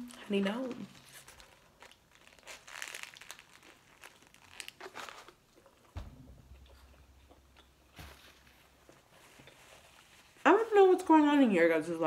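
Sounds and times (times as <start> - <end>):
paper wrapper crinkling: 0.0 - 5.8
dull low thump: 5.9 - 9.0.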